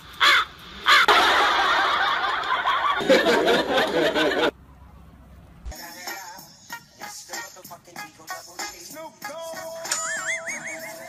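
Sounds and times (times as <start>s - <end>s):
people laughing loudly: 1.0s - 4.5s, 10.0s - 11.0s.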